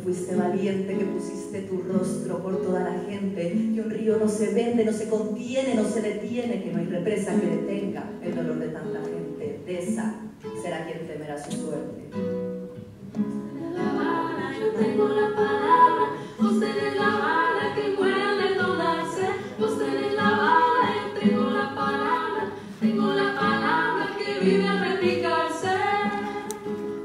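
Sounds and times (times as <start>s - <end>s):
strummed acoustic guitar: 12.2s - 27.0s
two women singing in harmony: 13.4s - 27.0s.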